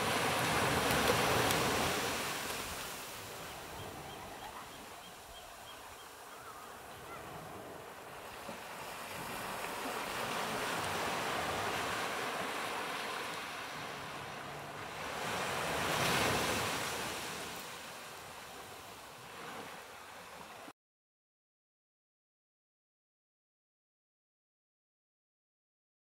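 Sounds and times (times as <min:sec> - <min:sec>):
ocean waves breaking on beach: 0:00.0 - 0:20.7.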